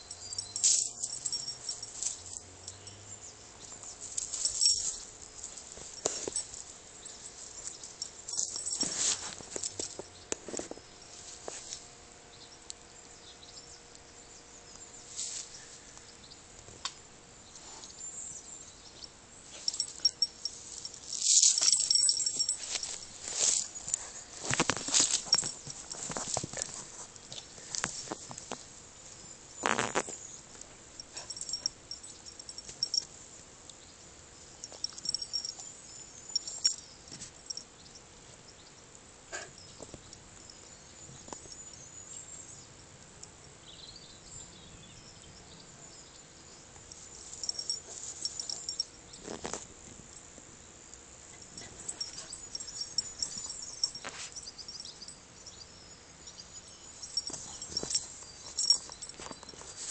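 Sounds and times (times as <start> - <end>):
rustling in grass: 3.9 - 11.9, 15.1 - 15.9, 19.4 - 28.7, 57.0 - 59.9
birds chirping: 29.2 - 33.0, 34.6 - 38.0, 51.4 - 59.9.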